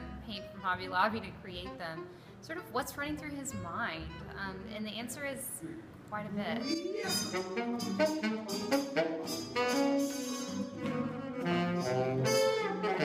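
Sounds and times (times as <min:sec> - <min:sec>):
jazz ensemble playing: 0:00.0 - 0:04.8, 0:06.2 - 0:13.0
saxophone: 0:06.6 - 0:13.0
trumpet: 0:06.6 - 0:13.0.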